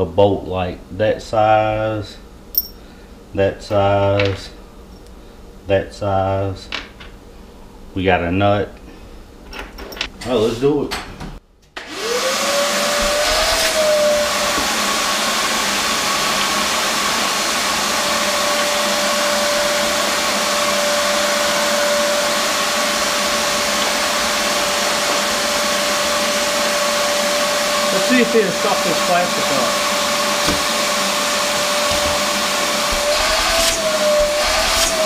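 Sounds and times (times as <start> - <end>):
shop vacuum motor whining: 11.8 - 35.0.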